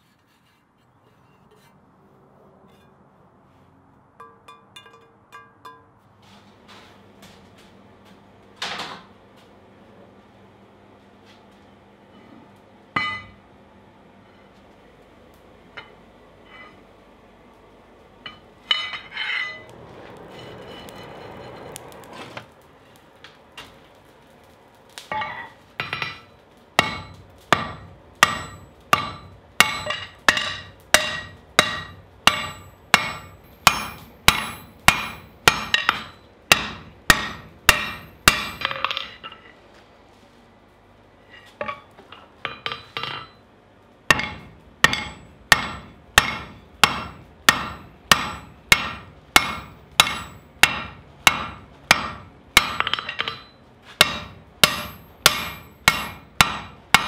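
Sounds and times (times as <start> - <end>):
hammer ringing on anvil: 4.2 - 6.0, 13.0 - 13.4, 25.1 - 39.1, 44.1 - 57.0.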